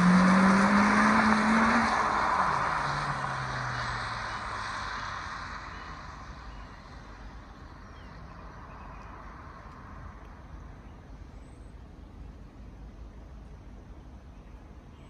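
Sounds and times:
tyres hissing on wet road: 0:00.0 - 0:10.0
car engine driving away: 0:00.0 - 0:10.8
distant traffic: 0:00.0 - 0:15.0.

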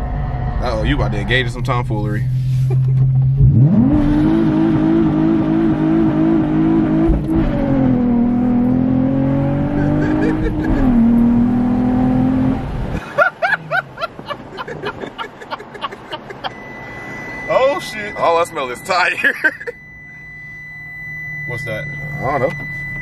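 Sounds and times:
car engine revving hard: 0:02.8 - 0:15.4.

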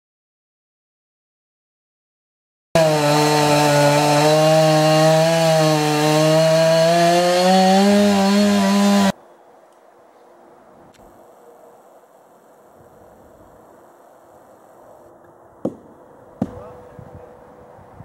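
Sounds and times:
chainsaw running: 0:02.8 - 0:09.1.

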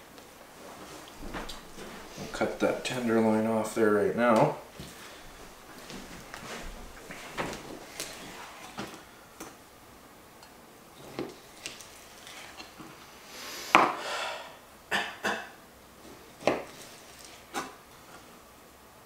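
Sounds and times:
knife scraping: 0:11.0 - 0:12.8.

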